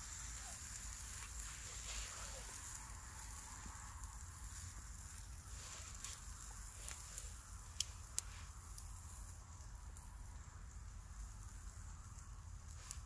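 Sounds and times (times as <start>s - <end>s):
steaks sizzling on grill: 0.0s - 13.0s.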